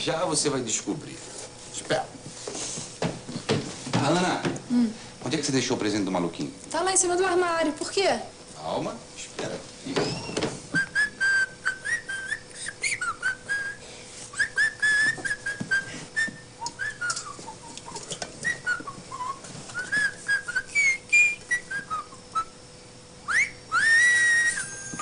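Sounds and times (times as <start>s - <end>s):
person whistling a tune: 10.0s - 13.8s, 14.4s - 22.5s, 23.2s - 25.0s.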